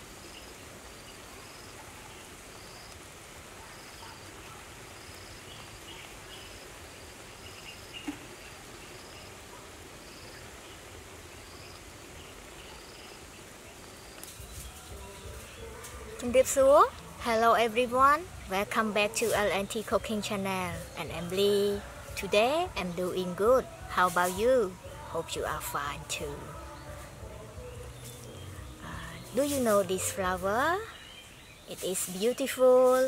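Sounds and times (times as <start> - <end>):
insect chirping: 0.0 - 4.2, 4.9 - 15.8
steady background hiss: 0.0 - 33.0.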